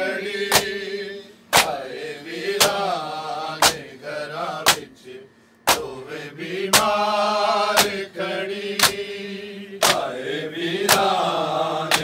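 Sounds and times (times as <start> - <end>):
men chanting a lament: 0.0 - 12.0
hands slapping bare chests: 0.5 - 0.8, 1.5 - 1.8, 2.6 - 2.8, 3.6 - 3.8, 4.6 - 4.8, 5.7 - 5.9, 6.7 - 7.0, 7.8 - 8.0, 8.8 - 9.0, 9.8 - 10.1, 10.9 - 11.2.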